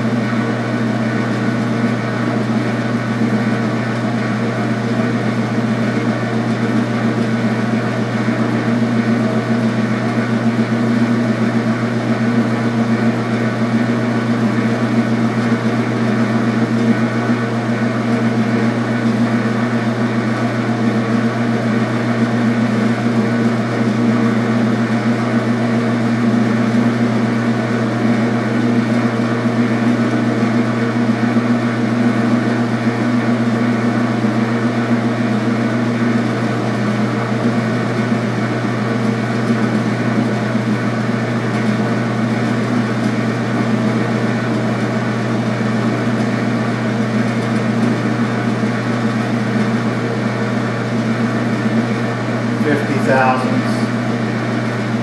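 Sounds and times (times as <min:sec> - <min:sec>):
metal lathe humming: 0:51.6 - 0:55.0.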